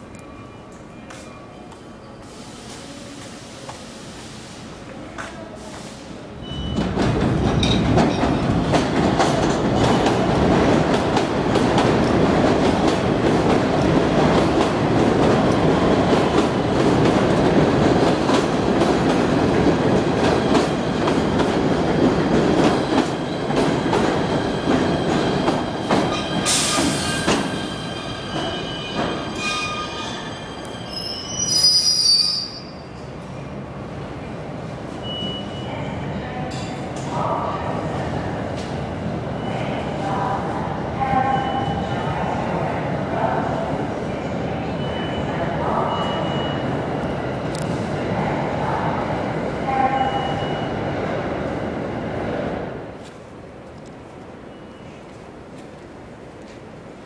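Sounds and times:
train wheels rumbling on rail: 2.2s - 31.5s.

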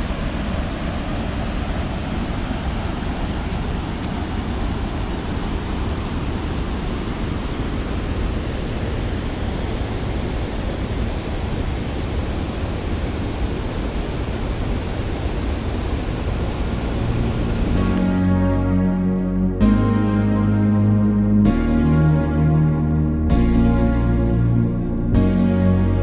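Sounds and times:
music: 16.8s - 26.0s.

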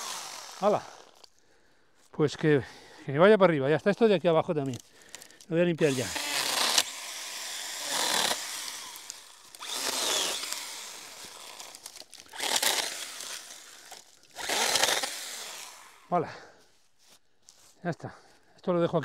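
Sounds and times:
battery chainsaw cutting: 0.0s - 1.3s, 4.7s - 16.2s.

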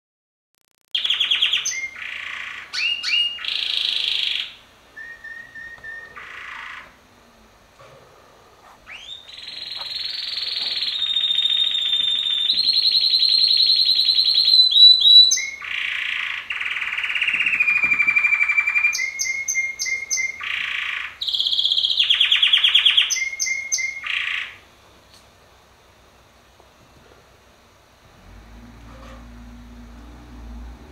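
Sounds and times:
canary singing trills: 1.0s - 7.0s, 8.8s - 24.6s.

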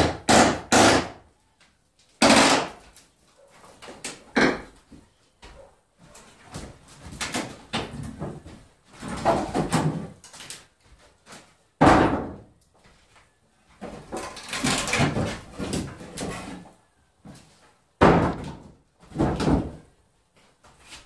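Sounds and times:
wooden boards banging: 4.1s - 4.8s, 7.1s - 10.4s, 11.8s - 12.5s, 13.8s - 16.6s, 18.0s - 19.9s
boards knocking and scraping: 6.4s - 10.5s, 13.8s - 16.7s, 18.0s - 19.9s.

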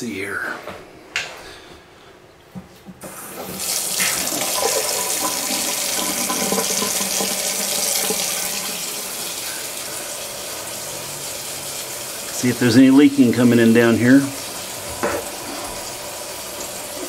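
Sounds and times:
water running into a metal sink: 3.5s - 17.0s.

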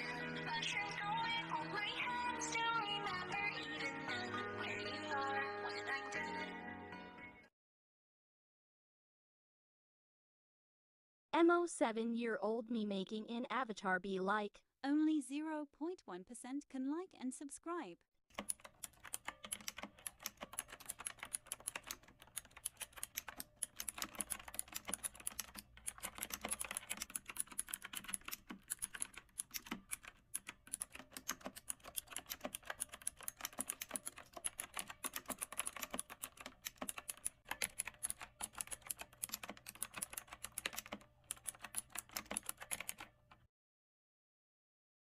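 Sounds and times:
fast keyboard typing: 18.3s - 43.5s.

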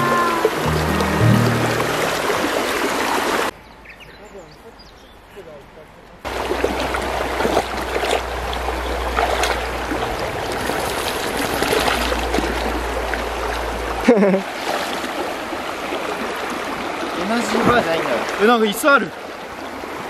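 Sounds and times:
river water flowing over rocks: 0.0s - 3.5s, 6.3s - 20.0s
dog splashing through water: 6.3s - 13.6s.

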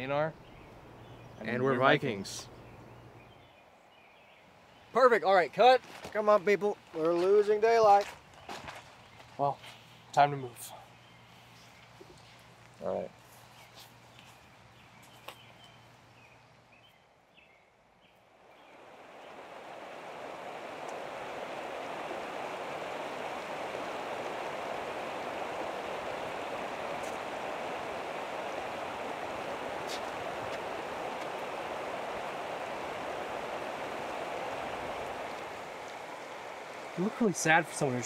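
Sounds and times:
flowing water rushing: 18.3s - 38.0s.

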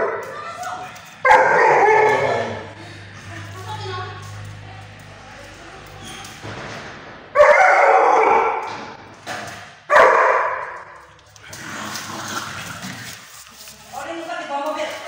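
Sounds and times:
dog barking: 1.2s - 2.7s, 7.4s - 8.7s, 9.9s - 11.0s.

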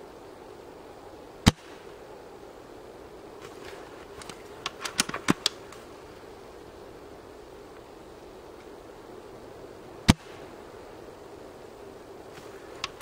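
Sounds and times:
wind noise: 0.0s - 13.0s
rifle bolt clicks and clacks: 4.2s - 5.6s.

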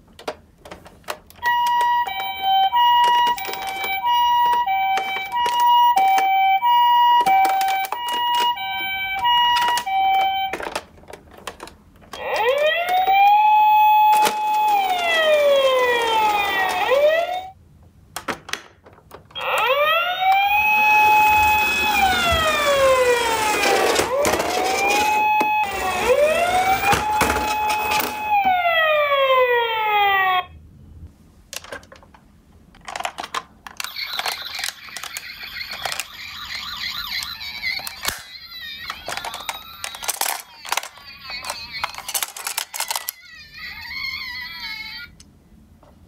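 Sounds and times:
plastic clicks and rattles: 0.0s - 13.2s, 31.5s - 36.2s, 37.7s - 43.2s
toy siren wailing: 1.4s - 10.8s, 12.1s - 17.6s, 19.4s - 30.6s, 33.8s - 45.2s.

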